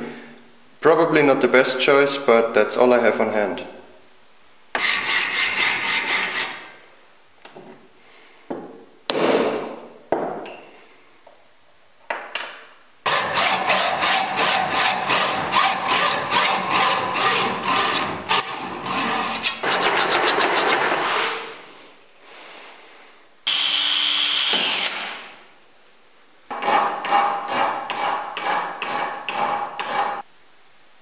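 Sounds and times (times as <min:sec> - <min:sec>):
hacksaw cutting steel tube: 0:04.8 - 0:06.7, 0:13.1 - 0:21.6, 0:26.5 - 0:30.2.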